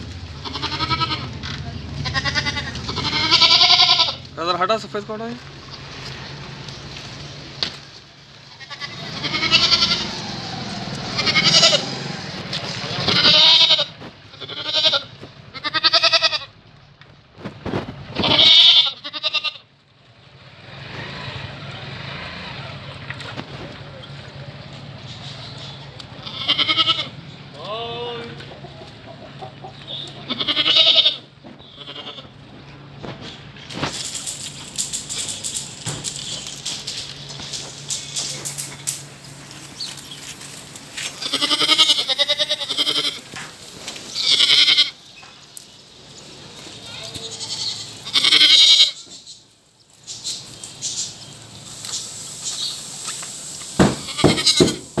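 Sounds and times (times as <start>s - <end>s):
goat bleating: 0.3s - 4.3s, 8.4s - 10.2s, 10.9s - 12.0s, 12.6s - 16.6s, 18.1s - 19.7s, 26.1s - 28.3s, 30.0s - 32.4s, 41.0s - 43.3s, 44.2s - 45.0s, 46.9s - 49.1s, 53.8s - 54.9s
heavy knocks: 53.8s - 55.0s.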